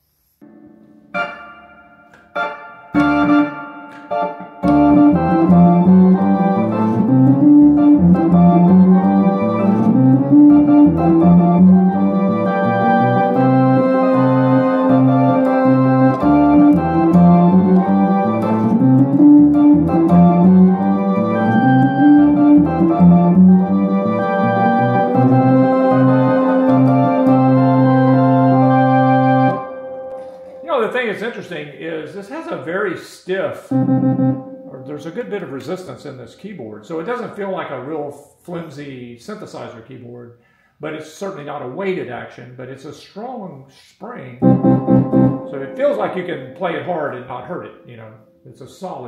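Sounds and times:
electronic organ playing: 0.4 - 31.7, 33.6 - 35.6, 44.4 - 47.2.

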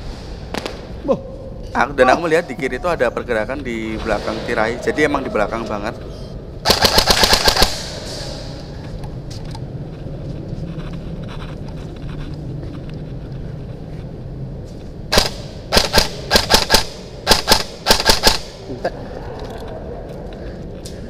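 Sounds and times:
airsoft rifle shots echoing: 6.6 - 8.4, 15.1 - 18.7.

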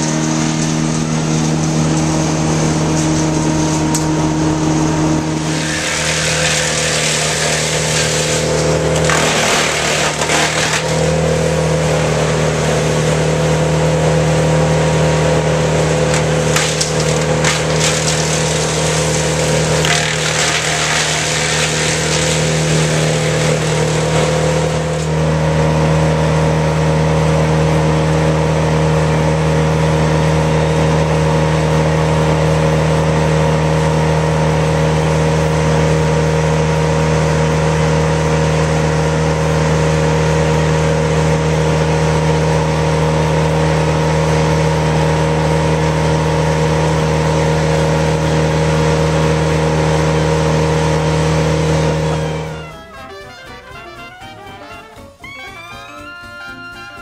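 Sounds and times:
branches rushing through chipper: 0.0 - 52.8
brush chipper engine running: 0.0 - 57.0.

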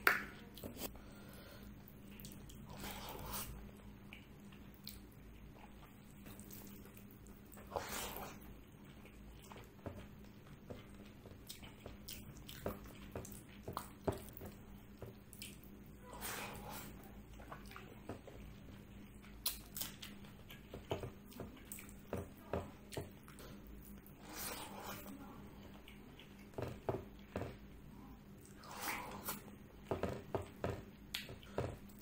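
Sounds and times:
chewing: 1.9 - 27.4.

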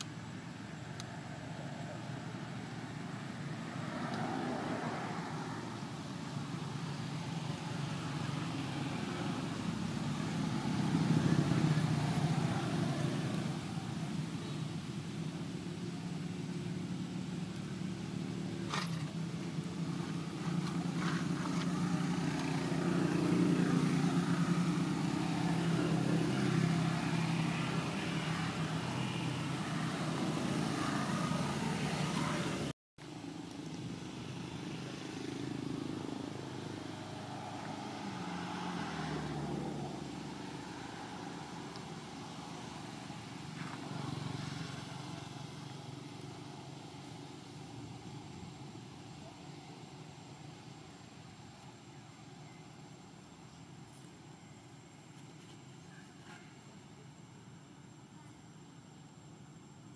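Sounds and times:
vehicle engines humming: 0.0 - 59.9.

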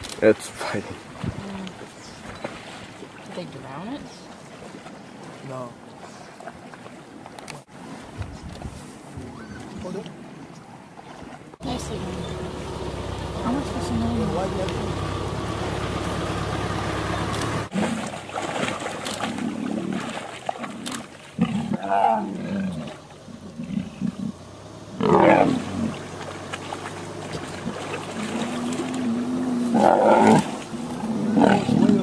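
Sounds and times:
lions growling and snarling: 19.1 - 32.0.

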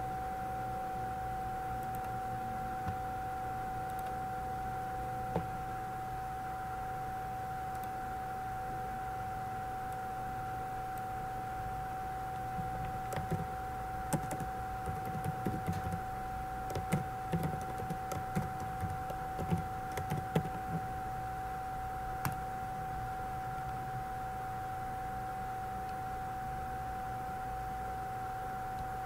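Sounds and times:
background whine and hum: 0.0 - 29.0
keyboard typing clicks: 12.6 - 13.5, 14.1 - 16.0, 16.7 - 20.9.

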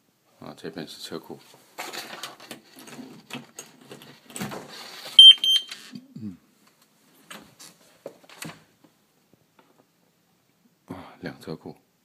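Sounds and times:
alarm keypad beeps: 5.2 - 5.7.

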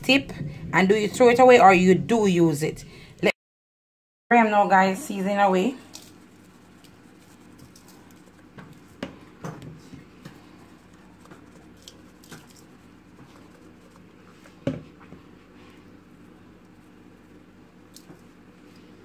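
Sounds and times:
seasoning pattering on chicken: 5.9 - 9.4, 10.1 - 14.3.

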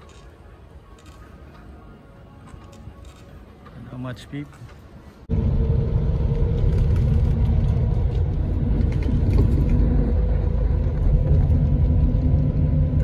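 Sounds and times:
road noise: 0.0 - 13.0
bus engine drone: 4.9 - 13.0.

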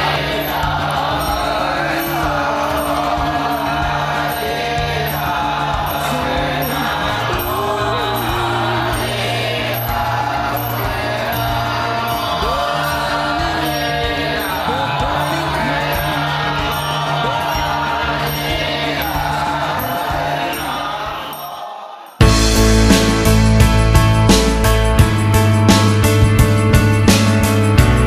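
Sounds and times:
monks chanting: 0.0 - 22.2.

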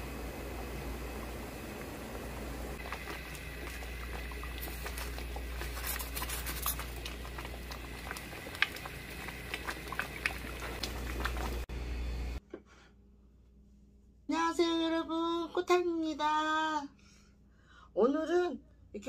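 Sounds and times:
porridge bubbling in a pot: 0.0 - 12.4
low steady hum: 0.0 - 19.0.

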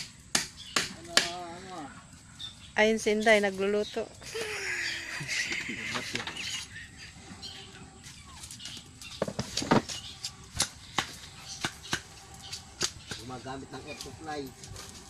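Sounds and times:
sharp irregular knocks: 0.0 - 1.4.

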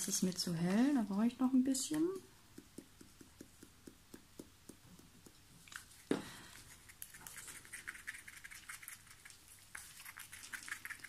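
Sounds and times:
soft stirring taps: 0.0 - 7.3.

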